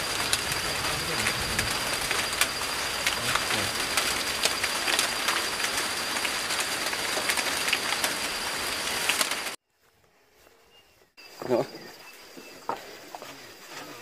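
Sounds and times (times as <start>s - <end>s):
rain drops ticking: 0.0s - 9.6s
rain hiss: 0.0s - 9.6s.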